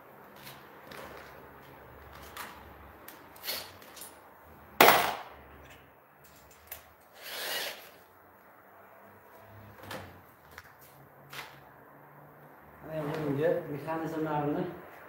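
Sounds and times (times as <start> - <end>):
sharp knock with ring: 4.8 - 5.3
scraping rub: 7.2 - 8.0.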